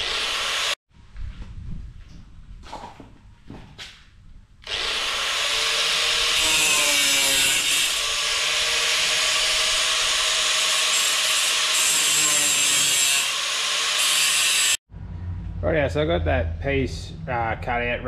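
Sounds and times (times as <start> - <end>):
angle grinder cutting steel: 0.0 - 0.8, 4.6 - 14.8.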